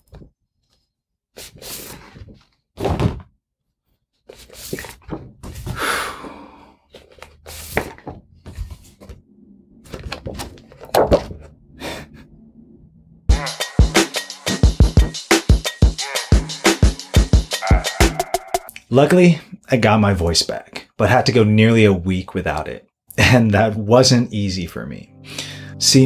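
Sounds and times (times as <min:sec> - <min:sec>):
paper cards rustling: 0:09.9 - 0:11.3
cards thunking: 0:09.9 - 0:11.4
music with a beat: 0:13.3 - 0:18.7.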